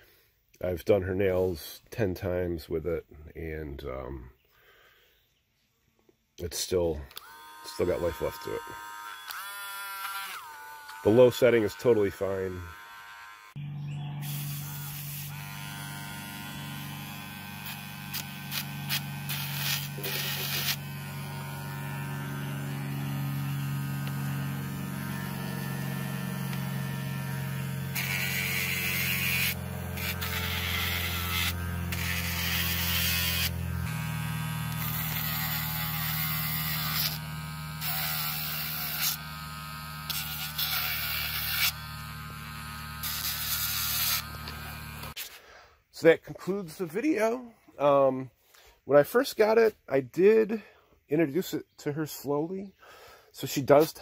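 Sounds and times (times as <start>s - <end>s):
small motor humming: 7.1s - 45.2s
gritty sanding of nails: 17.6s - 20.8s.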